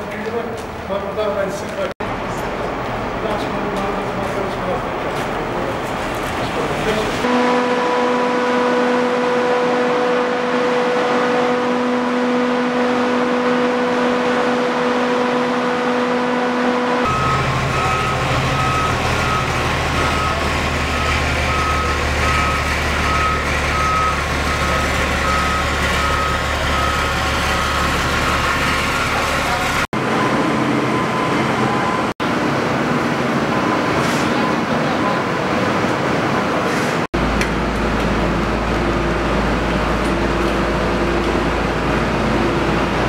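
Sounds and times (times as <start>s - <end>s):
road roller engines rumbling: 0.0s - 43.0s
reversing alarm beeping: 7.2s - 32.2s, 33.4s - 35.4s.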